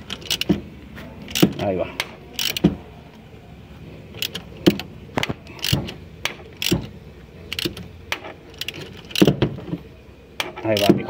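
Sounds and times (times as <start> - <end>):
socket ratchet clicking: 0.0 - 0.6, 1.3 - 2.8, 4.2 - 9.4.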